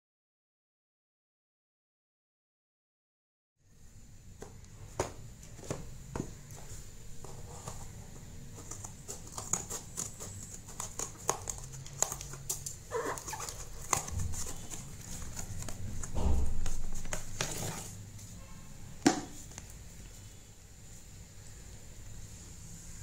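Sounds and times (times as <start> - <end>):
cardboard rustling and scraping: 4.8 - 18.4
scissors cutting cardboard: 8.5 - 16.1.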